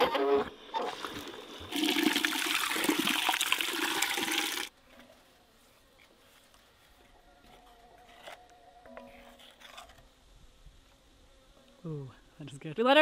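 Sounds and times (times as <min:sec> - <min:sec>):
water pouring into metal pot: 0:01.0 - 0:04.7.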